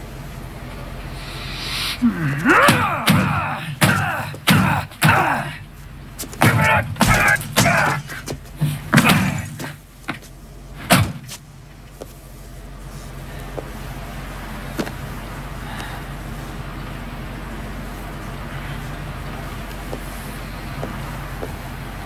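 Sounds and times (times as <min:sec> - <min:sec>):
man grunting: 0:02.0 - 0:05.7, 0:06.4 - 0:09.8
man yelling angrily: 0:02.0 - 0:05.7, 0:06.4 - 0:08.3
fist banging on machine: 0:02.5 - 0:05.4, 0:06.4 - 0:08.2, 0:08.9 - 0:09.8, 0:10.9 - 0:11.3.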